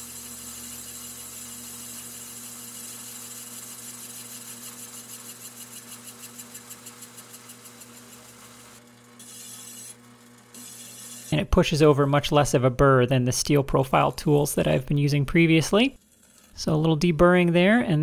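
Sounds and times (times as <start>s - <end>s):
metal lathe motor hum: 0.0s - 11.5s.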